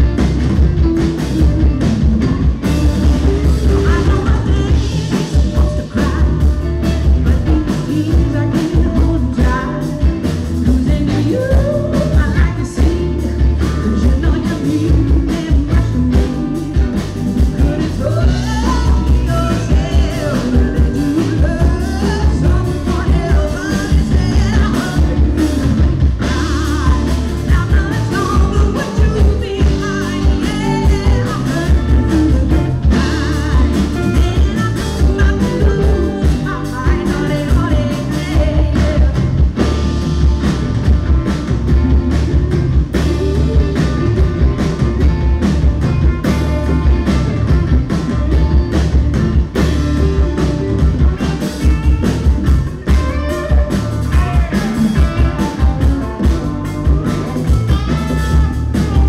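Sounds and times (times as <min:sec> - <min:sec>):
drums: 0:00.0 - 0:59.0
electric guitar: 0:00.0 - 0:59.0
live rock band: 0:00.0 - 0:59.0
woman singing: 0:02.6 - 0:40.0.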